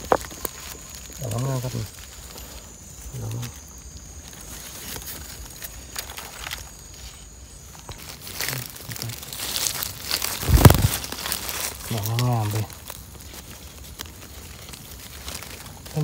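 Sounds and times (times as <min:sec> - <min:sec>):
footsteps rustling dry leaves: 0:00.0 - 0:16.0.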